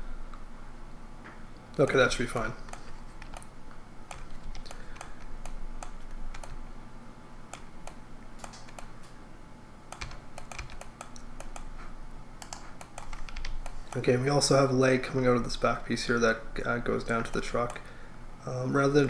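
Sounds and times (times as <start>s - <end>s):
faint steady hum: 0.0s - 19.0s
computer mouse clicks: 2.6s - 3.5s, 4.1s - 6.6s, 7.5s - 9.2s, 9.9s - 11.7s, 12.4s - 14.0s
keyboard typing: 2.6s - 3.5s, 4.1s - 6.6s, 7.5s - 8.9s, 9.9s - 14.0s.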